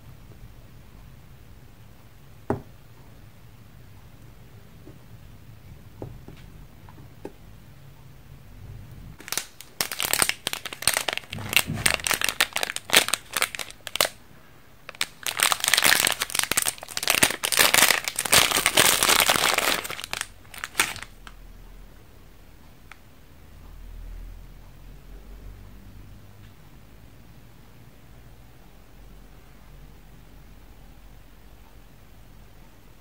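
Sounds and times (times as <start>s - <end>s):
plastic wrapper crinkling: 9.2s - 14.2s, 14.9s - 21.3s.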